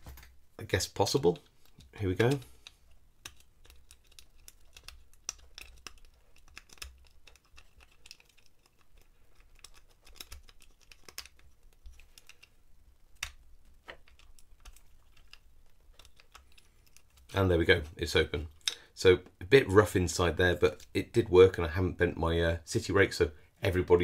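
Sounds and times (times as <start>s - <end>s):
lock pick clicking and scraping: 1.4s - 17.3s.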